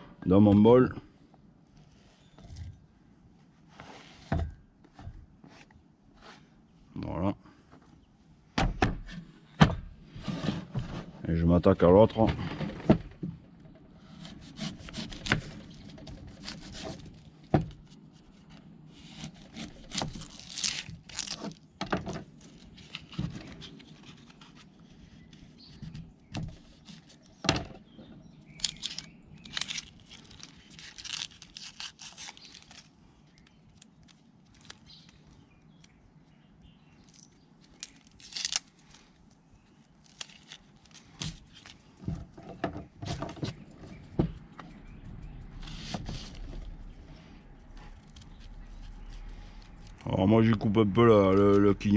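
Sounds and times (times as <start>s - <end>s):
onion skin crackling and tearing: 19.0s - 21.7s, 28.5s - 36.0s, 36.9s - 41.9s, 47.8s - 50.1s.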